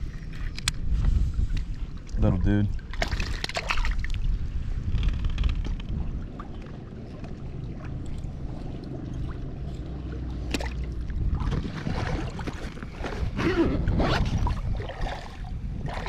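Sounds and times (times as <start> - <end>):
water lapping: 0.0 - 16.0
wind buffeting microphone: 0.0 - 16.0
water splashing: 1.8 - 4.4, 6.0 - 13.4, 14.1 - 16.0.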